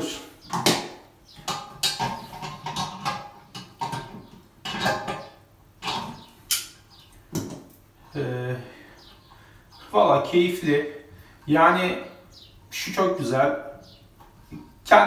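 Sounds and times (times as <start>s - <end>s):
tools clinking on ceramic toilet: 0.5s - 7.7s.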